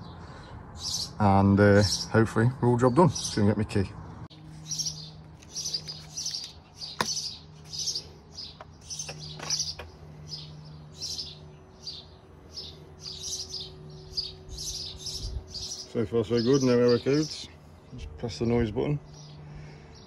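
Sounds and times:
small bird chirping: 4.3s - 18.0s.

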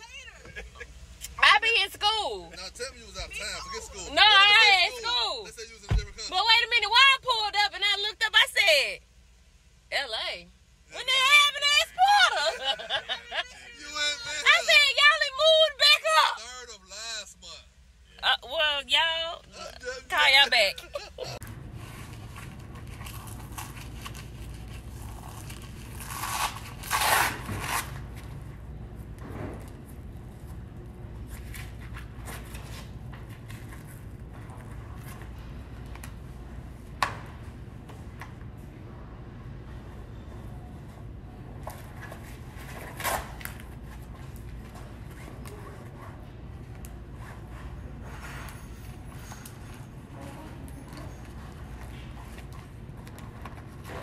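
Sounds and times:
low steady hum: 0.0s - 54.0s
hook-and-loop fastener ripping: 22.9s - 28.1s.

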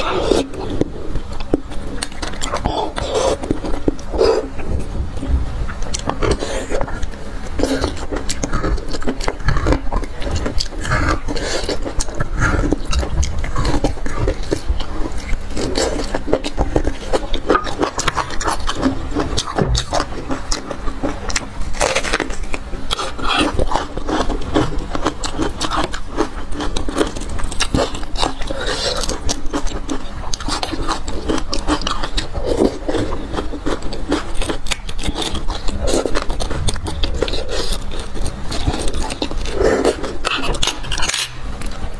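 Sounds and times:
biting into raw onion: 0.0s - 41.9s
wet sucking and chewing: 0.0s - 41.9s
metal utensil scraping bone: 22.1s - 41.9s.

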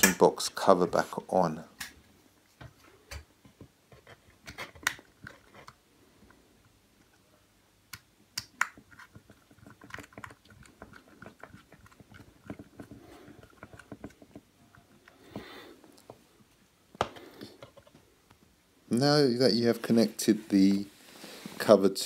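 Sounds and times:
cover and cable clicks and knocks: 3.1s - 5.8s, 8.4s - 14.9s.

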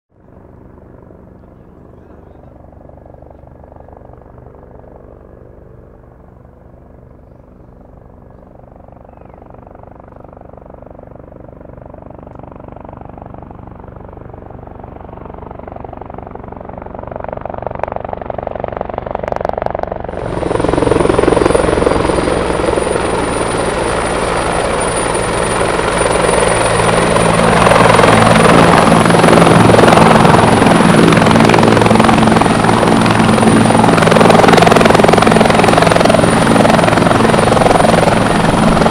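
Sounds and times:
helicopter rotor and turbine: 0.1s - 38.9s.

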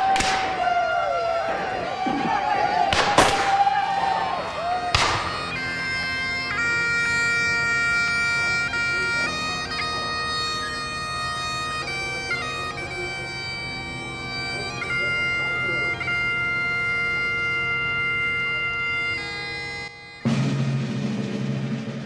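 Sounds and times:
bagpipes playing: 0.0s - 20.8s
sharp bang: 4.9s - 5.5s.

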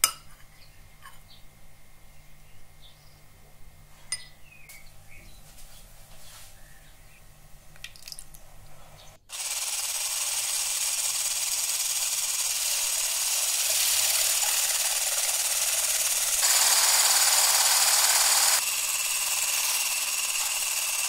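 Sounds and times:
electric hand blender whisking: 9.3s - 21.0s.

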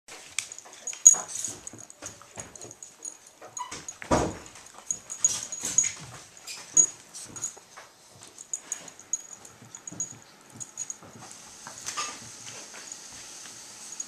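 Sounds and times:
dog collar tag jingling: 0.4s - 7.6s, 8.2s - 11.2s
paws scuffing wood floor: 0.5s - 11.3s.

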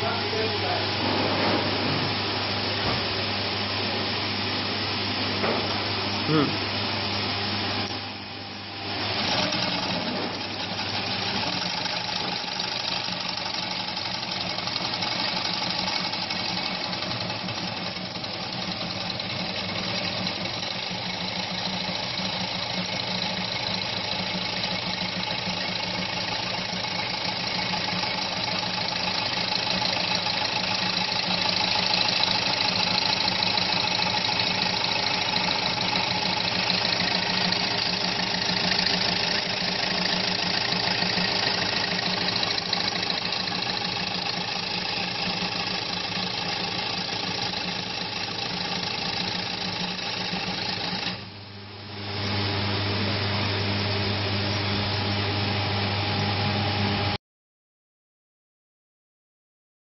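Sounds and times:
sewing machine needles chattering: 9.1s - 51.2s.

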